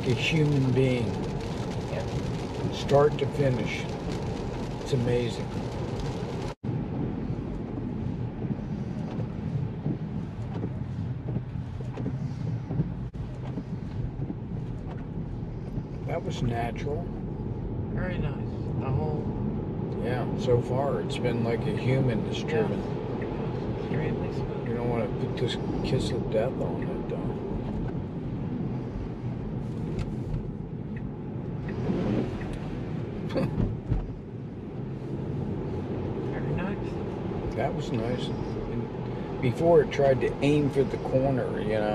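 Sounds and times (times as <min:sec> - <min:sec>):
tyre noise on wet road: 0:00.0 - 0:17.8
road and tyre rumble: 0:00.0 - 0:41.9.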